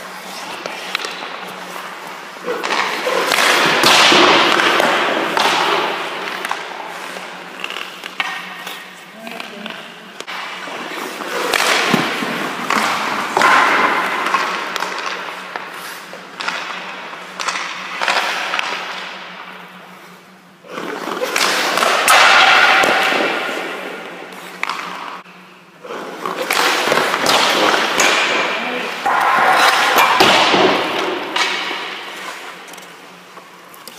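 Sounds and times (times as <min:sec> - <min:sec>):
skate blades scraping ice: 0:00.0 - 0:19.1, 0:25.8 - 0:33.9.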